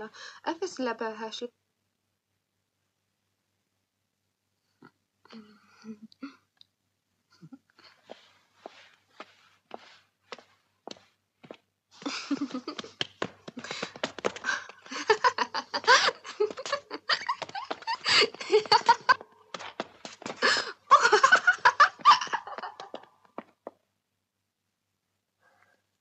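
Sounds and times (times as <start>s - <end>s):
people laughing and giggling: 12.0s - 19.4s, 20.1s - 23.2s.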